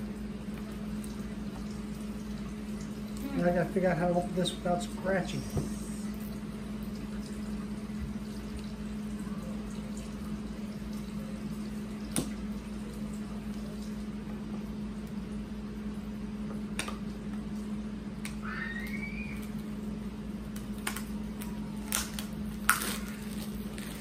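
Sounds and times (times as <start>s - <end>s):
steady low hum: 0.0s - 24.0s
plastic bag crinkling: 20.7s - 24.0s.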